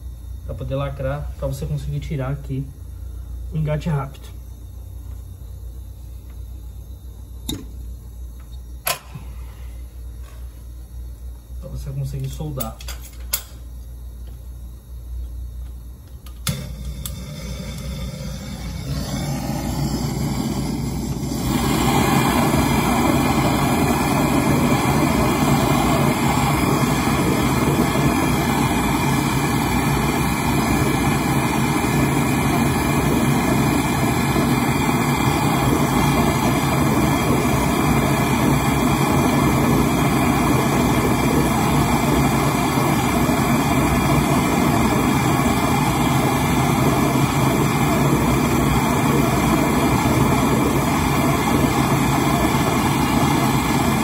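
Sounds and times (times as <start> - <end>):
torch flame hissing: 16.4 - 54.0.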